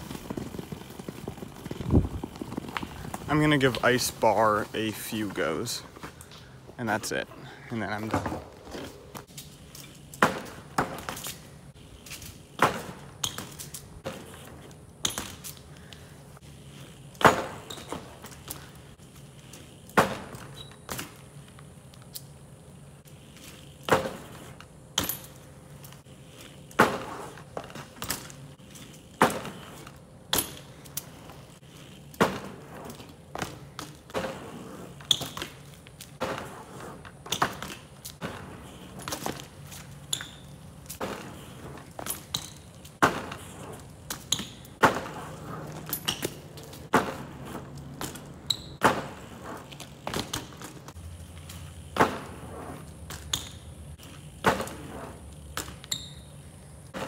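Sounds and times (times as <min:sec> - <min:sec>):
bike tyres and pegs knocking: 0:12.0 - 0:16.1, 0:23.1 - 0:57.0.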